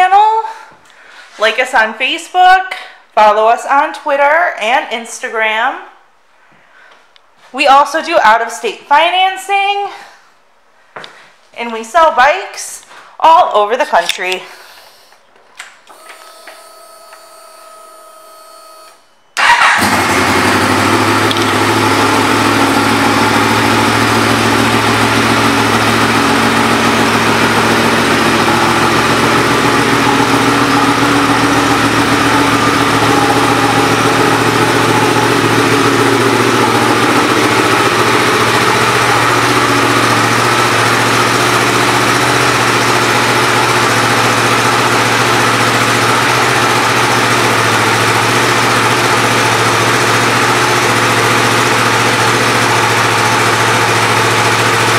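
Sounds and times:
motorcycle engine starting and idling: 15.7 - 54.9.

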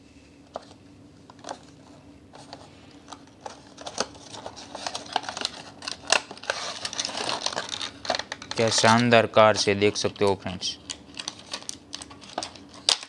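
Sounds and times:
packaging clicks and scrapes: 0.5 - 13.0
packaging crinkling: 1.3 - 13.0.

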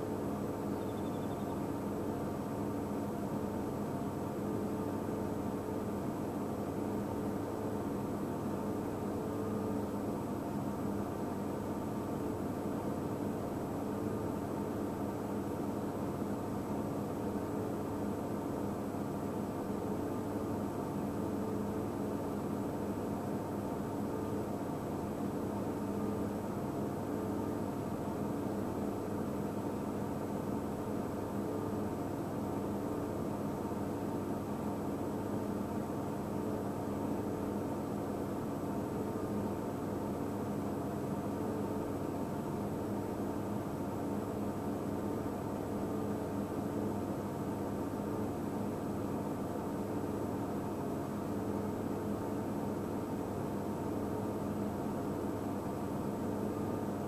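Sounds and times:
faint high whine: 0.0 - 57.0.

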